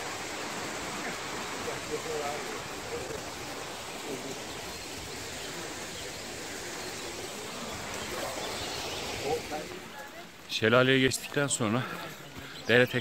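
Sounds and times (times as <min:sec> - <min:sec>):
small waterfall rushing: 0:00.0 - 0:13.0.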